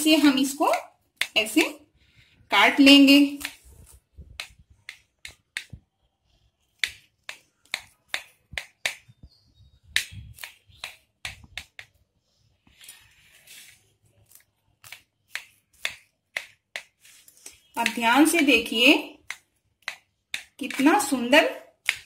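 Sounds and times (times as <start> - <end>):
soft rustle: 12.6 - 14.5.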